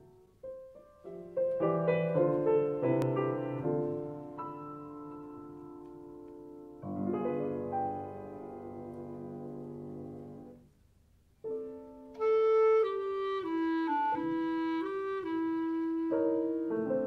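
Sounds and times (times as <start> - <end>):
piano chord: 0.0 - 10.6
clarinet slow melody: 11.6 - 17.0.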